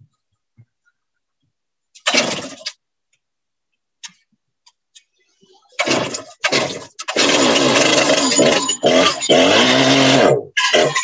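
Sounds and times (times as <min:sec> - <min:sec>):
chainsaw starting and revving: 0:05.8 - 0:11.0.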